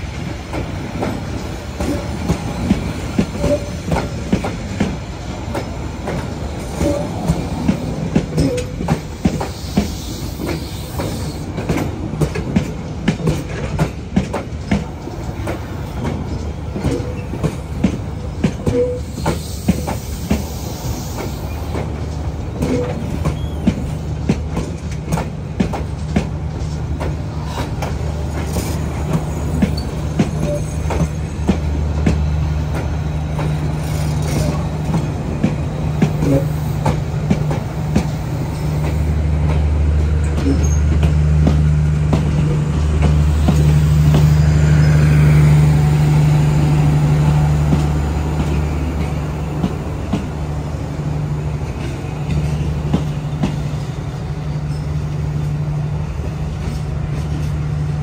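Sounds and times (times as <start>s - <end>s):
train wheels clacking: 0.0s - 58.0s.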